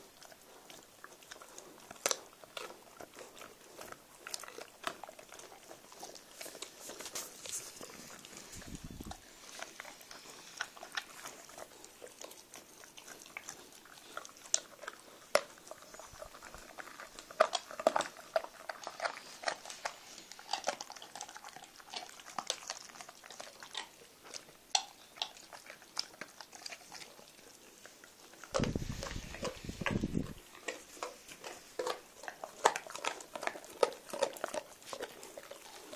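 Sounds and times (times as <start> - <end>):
puppy teeth crunching chew toy: 0.0 - 35.9.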